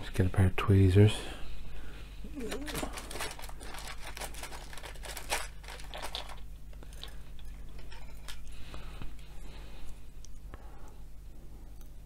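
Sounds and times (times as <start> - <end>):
packaging rustling and crinkling: 2.4 - 8.5.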